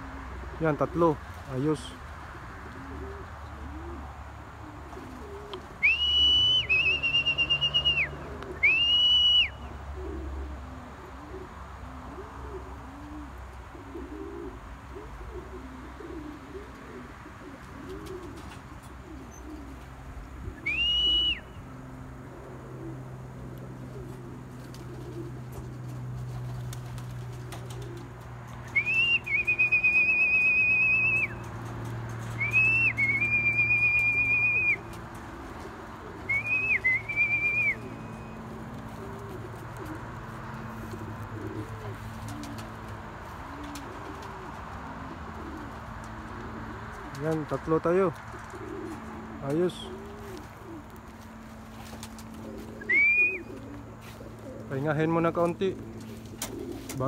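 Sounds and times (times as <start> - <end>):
pigeons cooing: 0.0 - 57.0
loud high whistles: 5.8 - 9.6, 20.6 - 21.6, 28.7 - 31.4, 32.4 - 34.9, 36.3 - 38.4, 52.9 - 53.4.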